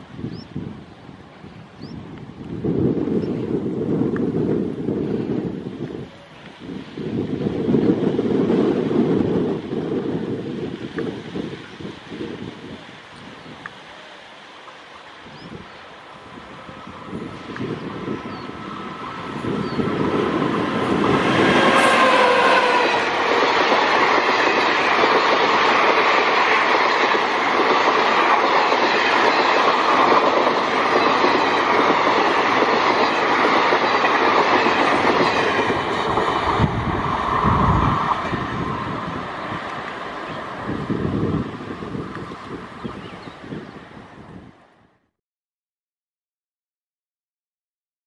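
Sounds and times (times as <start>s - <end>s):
locomotive whine: 16.0s - 27.5s
train wheels rolling: 16.0s - 42.7s.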